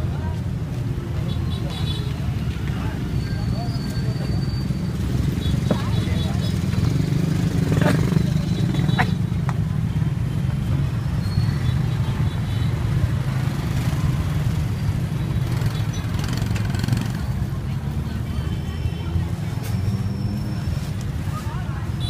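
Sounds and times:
crowd voices: 0:00.0 - 0:22.0
motorbike engines rumbling: 0:00.0 - 0:22.0.

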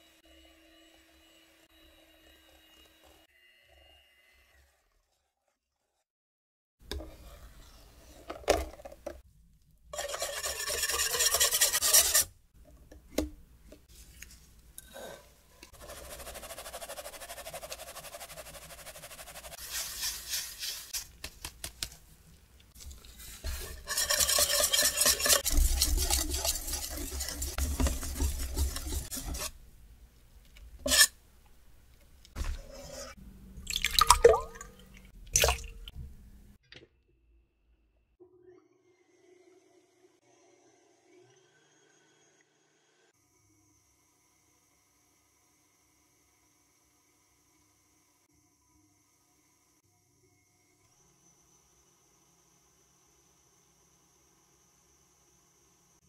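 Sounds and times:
whisk beating batter in bowl: 0:10.0 - 0:12.3, 0:15.7 - 0:21.9, 0:22.8 - 0:29.6.

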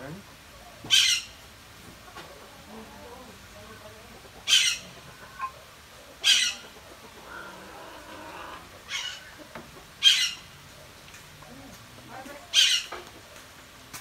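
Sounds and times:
bird rasping squawk: 0:00.9 - 0:01.4, 0:04.5 - 0:05.6, 0:06.2 - 0:09.4, 0:10.0 - 0:10.5, 0:12.5 - 0:13.0.

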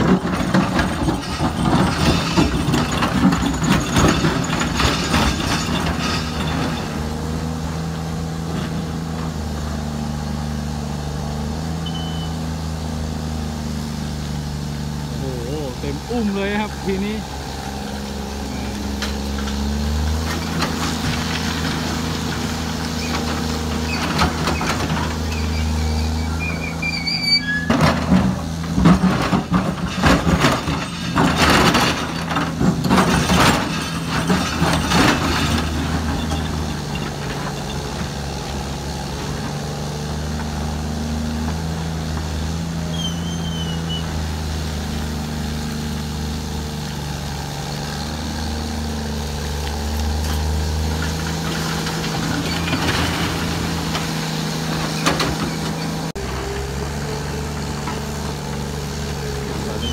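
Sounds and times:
steel bucket scraping rock: 0:00.0 - 0:07.6, 0:15.1 - 0:40.3, 0:49.9 - 0:56.6, 0:57.6 - 0:59.9
diesel engine running: 0:00.0 - 0:59.9.

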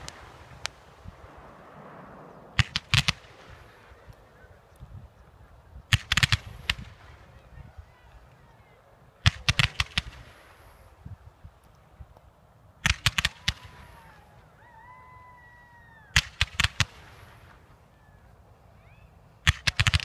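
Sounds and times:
fireworks bangs: 0:00.0 - 0:07.5.

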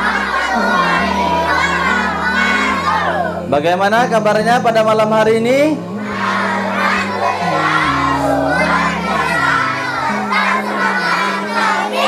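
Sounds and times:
children shouting together: 0:00.0 - 0:03.5, 0:05.9 - 0:12.0
background music with low notes: 0:00.0 - 0:12.0.

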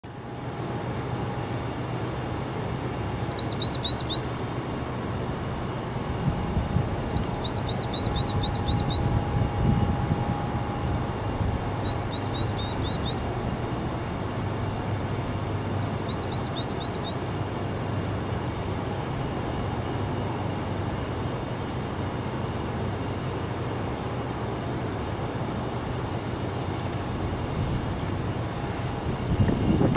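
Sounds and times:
chickadee calling: 0:03.0 - 0:04.4, 0:06.8 - 0:09.2, 0:10.9 - 0:14.0, 0:15.4 - 0:17.3
steady low rumble: 0:04.4 - 0:22.0, 0:24.3 - 0:29.9.

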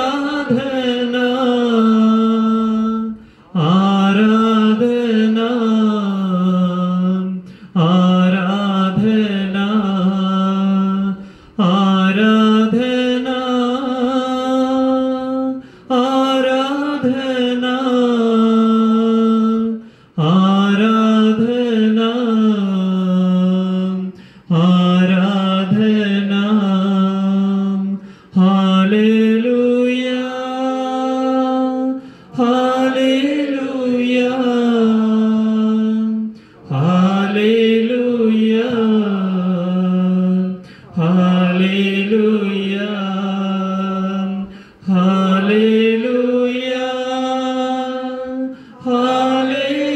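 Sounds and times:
person breathing: 0:03.2 - 0:03.6, 0:07.4 - 0:07.8, 0:11.2 - 0:11.6, 0:15.6 - 0:15.9, 0:19.8 - 0:20.2, 0:24.2 - 0:24.5, 0:28.0 - 0:28.4, 0:32.0 - 0:32.4, 0:36.3 - 0:36.7, 0:40.6 - 0:41.0, 0:44.4 - 0:44.8, 0:48.5 - 0:48.8.

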